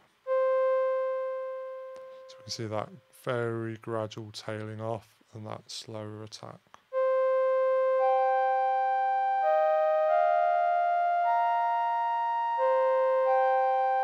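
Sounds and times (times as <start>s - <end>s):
synth string held notes: 0.2s - 3.4s, 6.9s - 14.0s.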